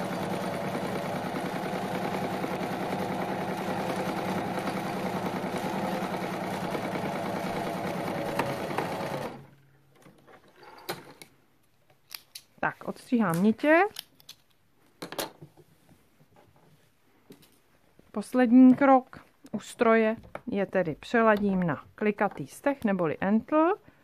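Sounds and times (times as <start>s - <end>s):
electric sewing machine running: 0.0s - 9.5s.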